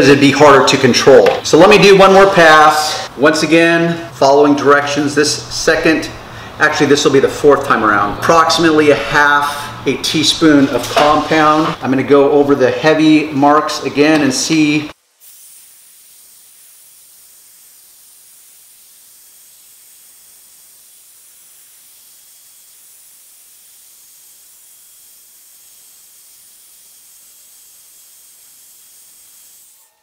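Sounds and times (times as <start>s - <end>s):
faint hiss with high tone: 15.0s - 30.0s.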